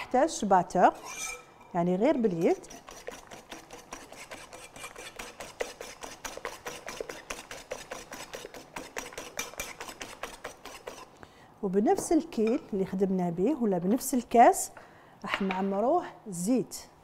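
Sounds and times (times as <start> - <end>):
whisk clicking against bowl: 2.5 - 11.0.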